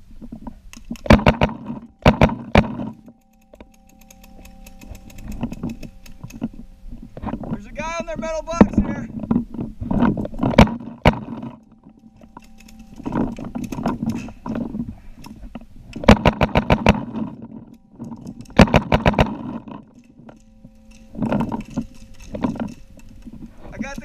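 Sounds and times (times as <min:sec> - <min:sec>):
paintball markers firing: 0:00.8 - 0:06.4, 0:16.0 - 0:17.4, 0:18.3 - 0:22.8.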